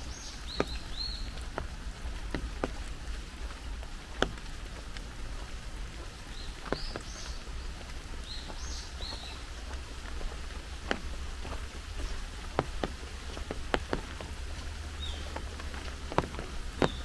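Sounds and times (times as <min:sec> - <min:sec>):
bird chirping: 0:00.0 - 0:01.4, 0:06.3 - 0:09.7, 0:14.9 - 0:15.4
rain falling: 0:00.0 - 0:17.0
sharp raindrops hitting: 0:00.0 - 0:17.0.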